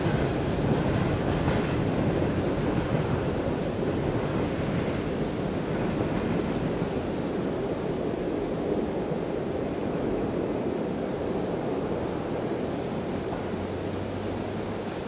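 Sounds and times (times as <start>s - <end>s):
freight train wheels rolling on rails: 0.0s - 15.0s.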